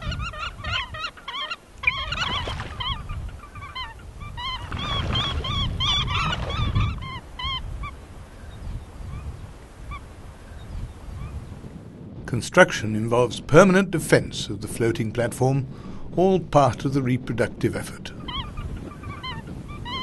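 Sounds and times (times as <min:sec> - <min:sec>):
grebes calling: 0:00.0 - 0:11.4, 0:17.7 - 0:20.0
water splashing: 0:01.7 - 0:03.1, 0:04.5 - 0:07.4.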